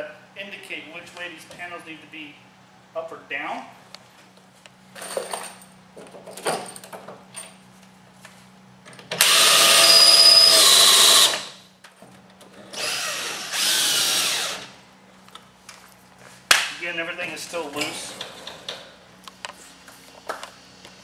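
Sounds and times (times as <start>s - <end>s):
cordless drill driving bolts: 9.1s - 11.6s, 12.8s - 14.7s.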